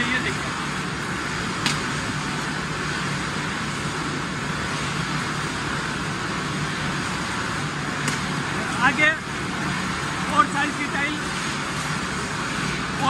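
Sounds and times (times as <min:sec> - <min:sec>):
constant low hum: 0:00.0 - 0:13.0.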